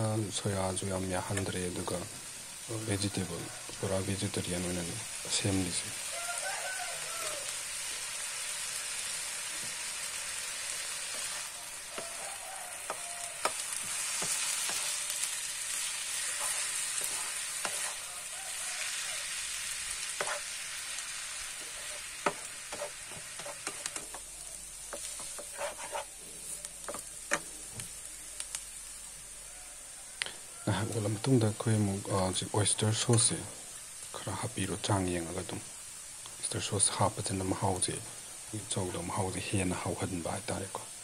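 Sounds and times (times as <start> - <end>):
noodles sizzling in frying pan: 0.0 - 41.0
spatula scraping and clacking pan: 12.8 - 18.1, 20.0 - 20.7, 21.5 - 24.3, 24.9 - 26.1.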